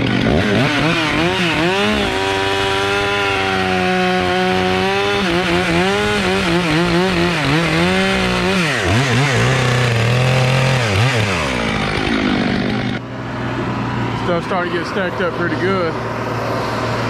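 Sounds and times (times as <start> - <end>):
chainsaw cutting log: 0.0 - 13.1.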